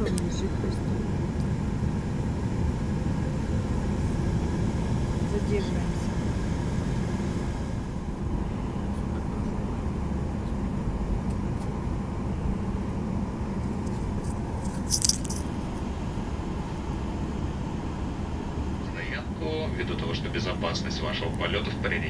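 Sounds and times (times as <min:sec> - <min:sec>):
airliner cabin hum: 0:00.0 - 0:22.0
high-pitched metallic rattle: 0:14.2 - 0:15.5.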